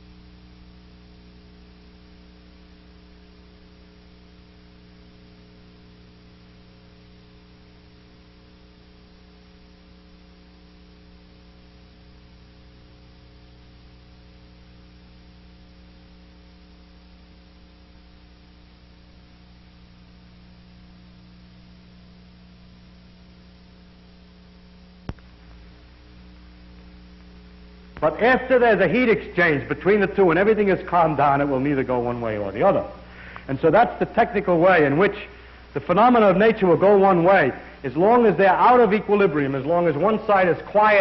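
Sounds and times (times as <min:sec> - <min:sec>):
electrical hum: 0:00.0 - 0:41.0
even hiss: 0:26.8 - 0:41.0.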